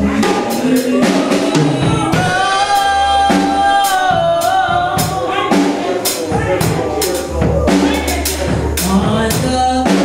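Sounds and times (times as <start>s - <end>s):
woman singing into a microphone: 0.0s - 5.6s, 8.8s - 10.0s
drum kit with cymbals: 0.0s - 10.0s.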